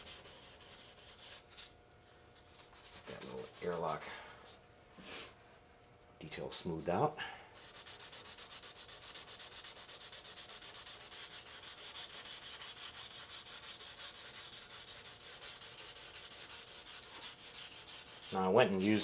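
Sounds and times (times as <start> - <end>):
sandpaper rubbing on plastic: 0.0 - 1.7, 2.7 - 4.0, 7.6 - 19.0.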